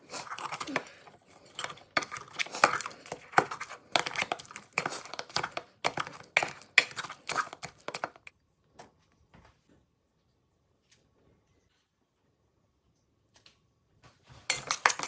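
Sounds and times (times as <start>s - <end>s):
masher squelching avocado: 0.0s - 8.3s.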